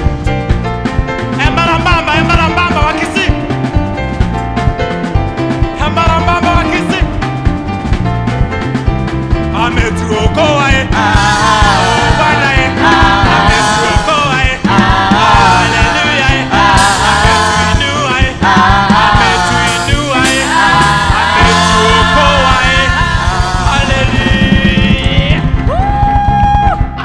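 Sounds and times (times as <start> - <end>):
band with keyboard and drums: 0.0 - 27.0
group singing gospel song: 9.6 - 25.5.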